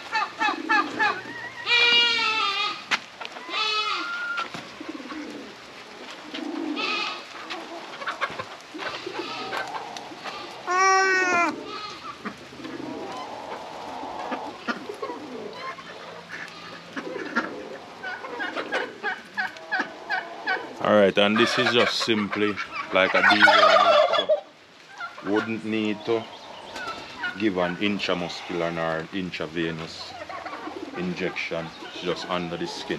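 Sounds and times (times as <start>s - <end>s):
young goat bleating: 3.5s - 4.3s, 6.8s - 7.2s, 8.9s - 9.6s, 10.2s - 12.2s.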